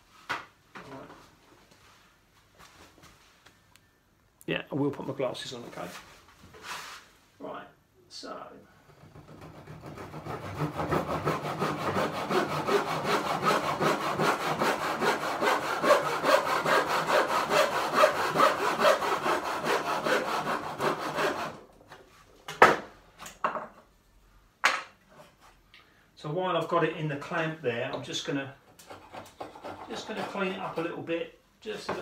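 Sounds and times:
hand saw cutting wood: 0:09.0 - 0:21.6, 0:28.7 - 0:31.0.

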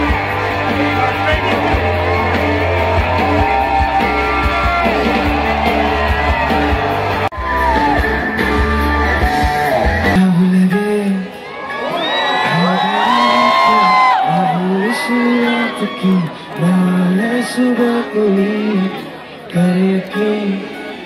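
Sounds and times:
live rock band playing: 0:00.0 - 0:12.8
person singing: 0:00.0 - 0:21.0.

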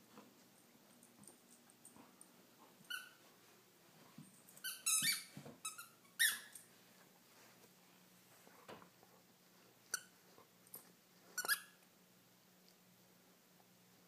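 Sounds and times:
squeaky dog toy squeaking: 0:02.9 - 0:03.2, 0:04.6 - 0:06.6, 0:11.4 - 0:11.8.

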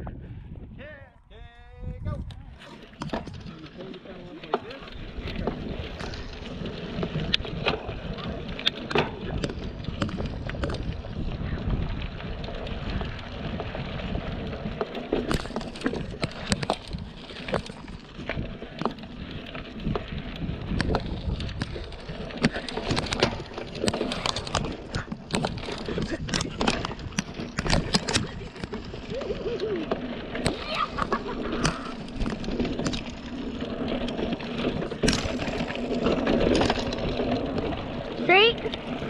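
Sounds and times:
wind on microphone: 0:00.0 - 0:03.8, 0:04.8 - 0:39.0
bike clicks and knocks: 0:02.3 - 0:39.0
tyres crunching over stones: 0:02.6 - 0:39.0.

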